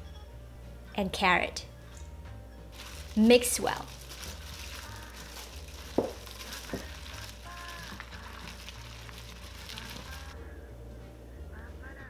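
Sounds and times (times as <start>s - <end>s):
wet squelching of vegetables: 2.8s - 10.4s.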